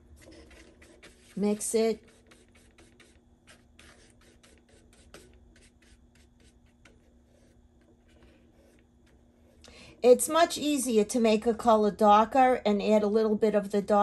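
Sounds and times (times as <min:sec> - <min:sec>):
paintbrush strokes on paper plate: 0:00.0 - 0:09.6.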